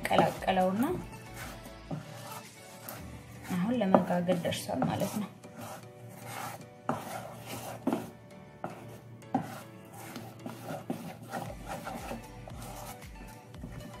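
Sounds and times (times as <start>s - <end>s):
batter stirred in metal bowl: 0.0s - 14.0s.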